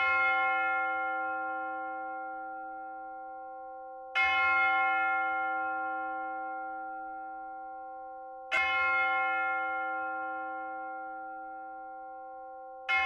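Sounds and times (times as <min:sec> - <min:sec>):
church bell tolling: 0:00.0 - 0:13.0.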